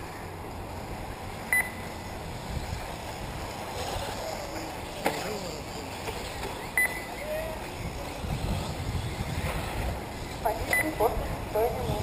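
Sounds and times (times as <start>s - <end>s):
outdoor background noise: 0.0s - 12.0s
high electronic double beep: 1.5s - 1.9s, 6.7s - 7.2s.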